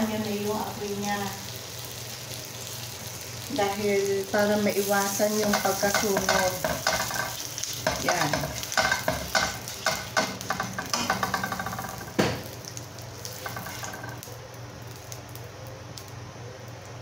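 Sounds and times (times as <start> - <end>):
butter sizzling faintly: 0.0 - 17.0
spatula scraping a frying pan: 13.3 - 14.1.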